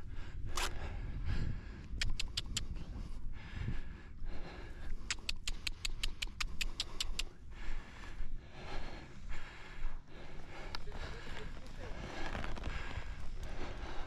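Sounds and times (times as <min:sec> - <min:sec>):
low wind rumble: 0:00.0 - 0:05.2, 0:07.2 - 0:14.0
sharp clicks: 0:01.9 - 0:02.7, 0:04.9 - 0:07.3.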